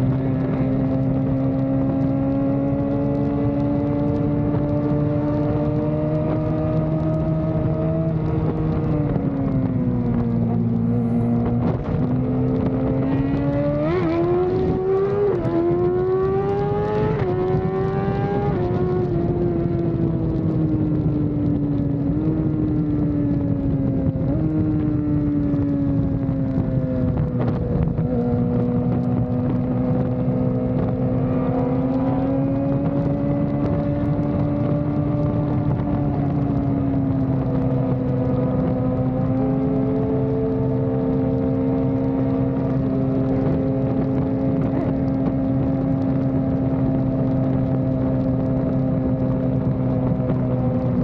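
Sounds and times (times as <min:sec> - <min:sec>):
motorcycle engines droning: 0:00.0 - 0:51.0
wind and road rush: 0:00.0 - 0:51.0.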